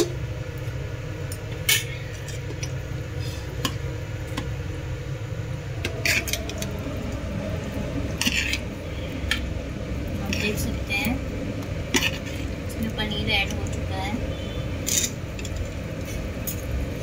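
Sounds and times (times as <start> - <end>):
steady low hum: 0.0 - 17.0
metal spoon scraping pot: 5.8 - 6.7, 8.1 - 9.5, 11.9 - 12.5, 14.8 - 16.2.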